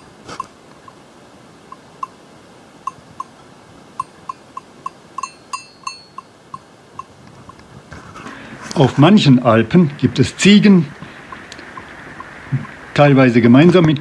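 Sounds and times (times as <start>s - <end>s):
faint steady hiss: 0.0s - 14.0s
goat bell clinking: 4.0s - 7.1s.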